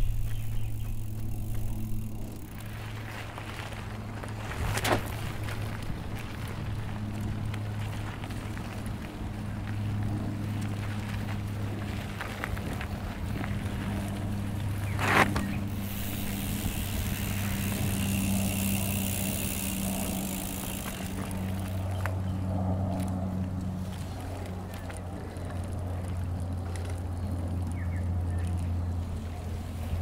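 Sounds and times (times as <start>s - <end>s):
bike tyre rush on dirt: 0.0s - 22.2s
steady low hum: 0.0s - 30.0s.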